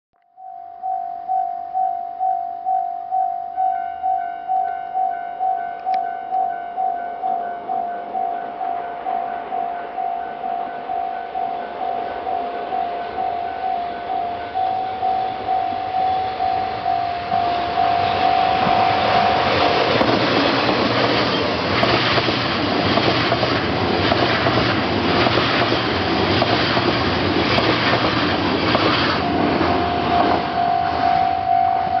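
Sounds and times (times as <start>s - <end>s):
level crossing bell ringing: 0.4s - 19.8s, 29.3s - 32.0s
train wheels clattering on rails: 16.4s - 31.0s.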